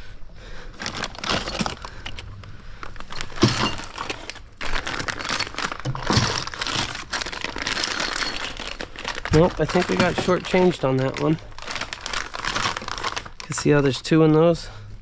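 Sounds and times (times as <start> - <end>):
metal parts clinking and rattling: 0.9 - 2.3, 2.9 - 12.8.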